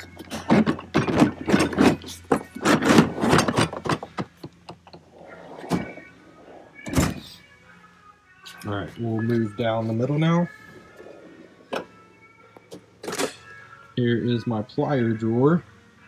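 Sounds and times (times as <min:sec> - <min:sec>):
metal tools clattering in drawer: 0:00.0 - 0:05.0, 0:13.0 - 0:13.5
drawer shutting: 0:00.5 - 0:04.3, 0:05.4 - 0:06.0.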